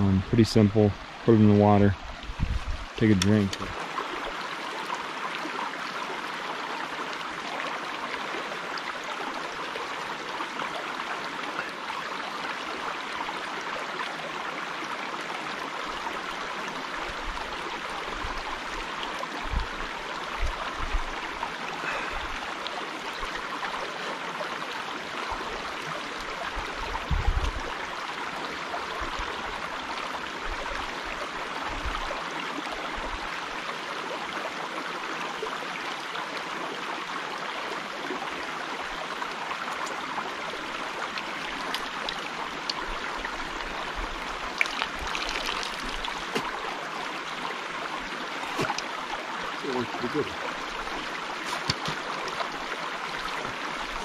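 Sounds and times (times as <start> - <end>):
creek water flowing: 0.0 - 54.0
short low thumps: 27.1 - 27.6.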